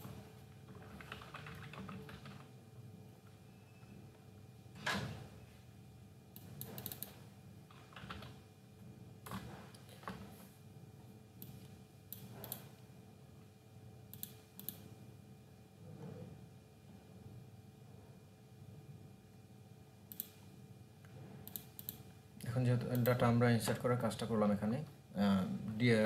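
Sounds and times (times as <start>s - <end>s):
keyboard keys tapping: 0.7s - 2.5s.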